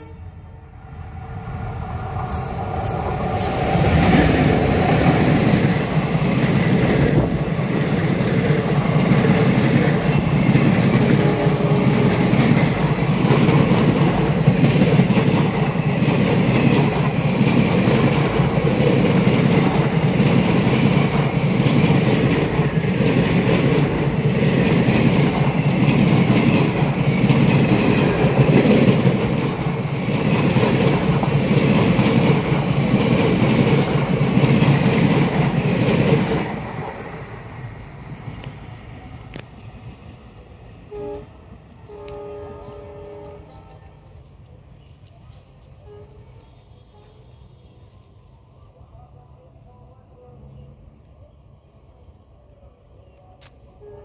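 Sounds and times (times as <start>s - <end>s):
train wheels clattering on rails: 2.2s - 41.0s.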